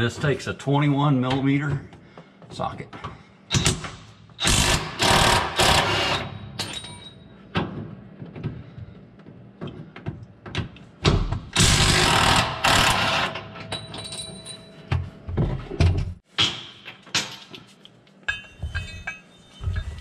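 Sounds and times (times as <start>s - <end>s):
impact wrench hammering: 3.5s - 6.9s, 11.0s - 14.3s.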